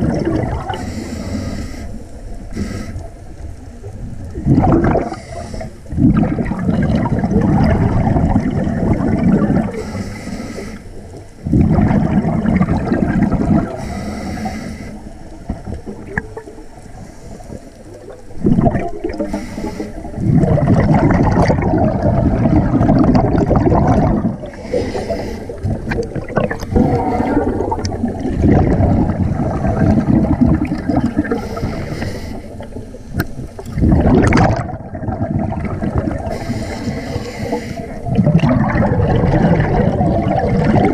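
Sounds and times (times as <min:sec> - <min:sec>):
exhaled bubbles underwater: 0:00.0 - 0:40.9
regulator inhale hiss: 0:00.7 - 0:03.6, 0:05.0 - 0:05.9, 0:09.7 - 0:11.2, 0:13.7 - 0:15.3, 0:16.9 - 0:18.1, 0:19.1 - 0:20.2, 0:24.4 - 0:25.9, 0:31.2 - 0:33.0, 0:36.2 - 0:38.1.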